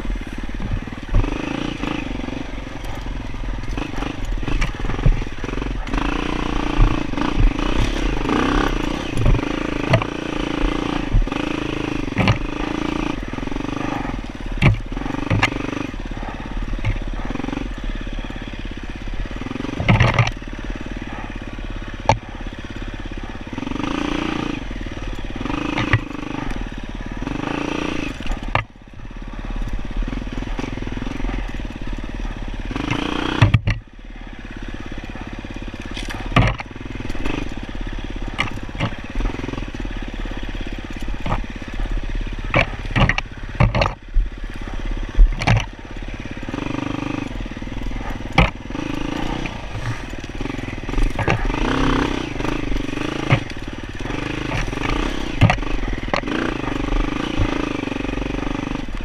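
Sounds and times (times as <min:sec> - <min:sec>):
bike knocking and clattering: 0:00.0 - 0:59.0
dirt bike engine revving: 0:00.0 - 0:59.0.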